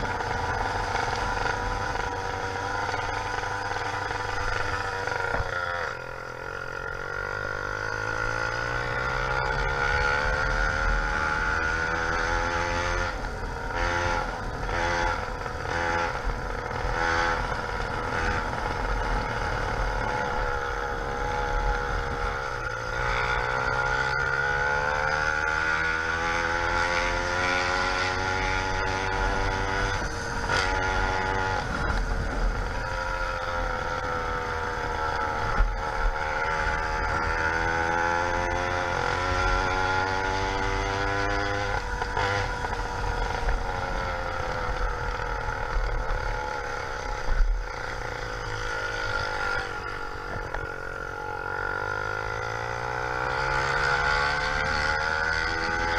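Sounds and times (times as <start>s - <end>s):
two-stroke engine revving: 0.0s - 55.9s.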